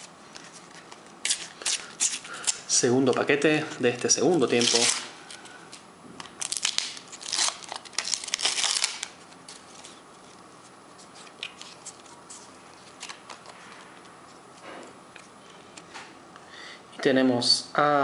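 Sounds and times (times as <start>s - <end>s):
paper wrapper tearing and crinkling: 4.0s - 5.4s, 6.3s - 10.0s.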